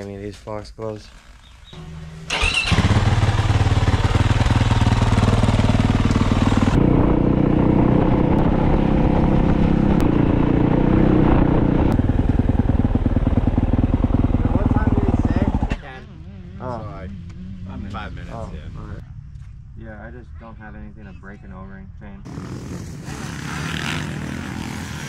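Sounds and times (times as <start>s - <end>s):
dirt bike engine running: 1.0s - 18.2s, 22.3s - 25.0s.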